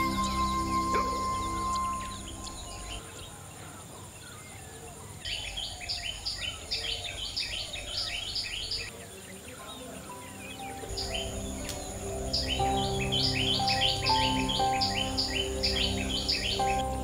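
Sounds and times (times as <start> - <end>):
high insect drone: 0.0 - 3.4, 10.1 - 17.0
birdsong: 0.0 - 17.0.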